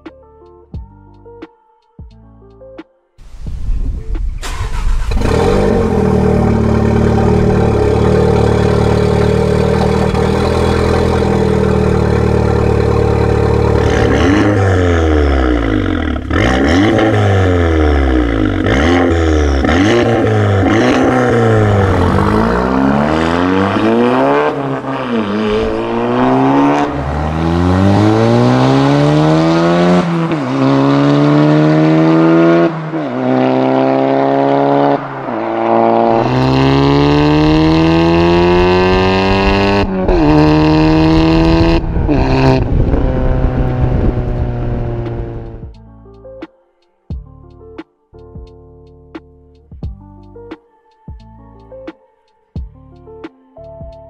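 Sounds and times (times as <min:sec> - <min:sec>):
car engine idling and revving: 0:04.1 - 0:45.8.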